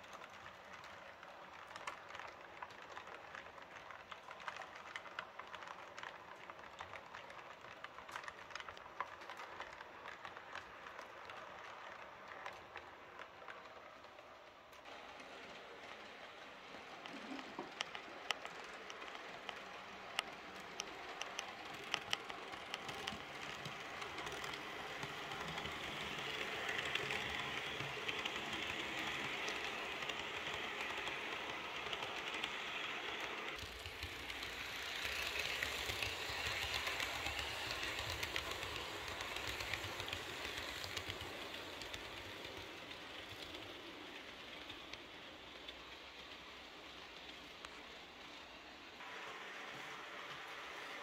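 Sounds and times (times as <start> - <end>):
model train wheels clicking: 0.0 - 51.0
model train rolling hiss: 17.7 - 51.0.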